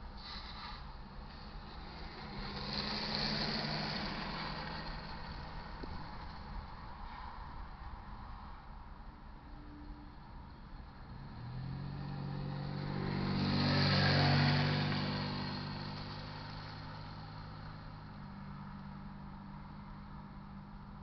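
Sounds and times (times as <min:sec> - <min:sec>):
car driving past: 0:00.2 - 0:07.8, 0:11.0 - 0:18.8.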